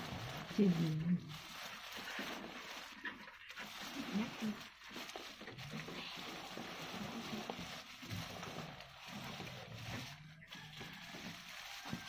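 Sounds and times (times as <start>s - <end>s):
earth sliding onto plastic tarp: 0.0s - 12.0s
plastic bag rustling: 0.0s - 12.0s.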